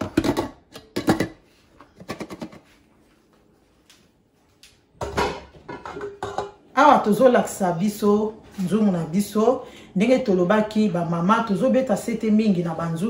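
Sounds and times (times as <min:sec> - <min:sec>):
pot and glass lid clattering: 0:05.0 - 0:06.6
pot knocking on hob: 0:05.0 - 0:06.6.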